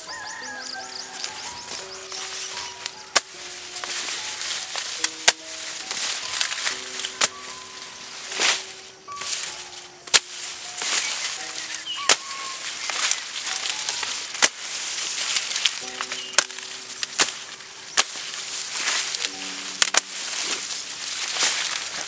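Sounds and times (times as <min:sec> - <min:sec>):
plants rustling: 0:00.0 - 0:22.0
soft background music: 0:00.0 - 0:22.0
sharp snaps: 0:08.3 - 0:14.7, 0:15.3 - 0:20.6.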